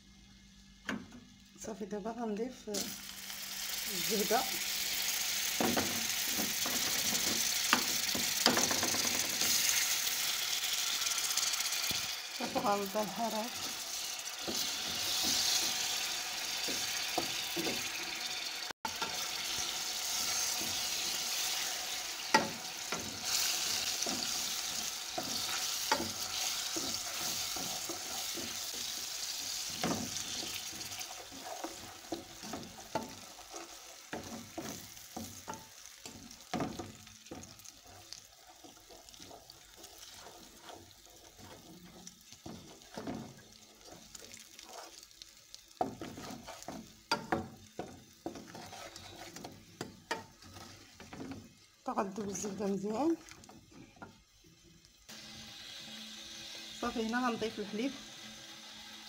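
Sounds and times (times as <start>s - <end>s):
butter sizzling in hot sugar: 0.0s - 59.0s
wooden spatula scraping a pan: 11.9s - 18.1s, 18.9s - 45.2s, 45.8s - 52.7s.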